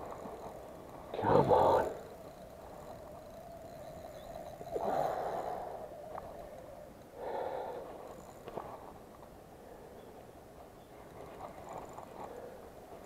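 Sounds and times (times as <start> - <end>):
man breathing hard: 7.2 - 8.1.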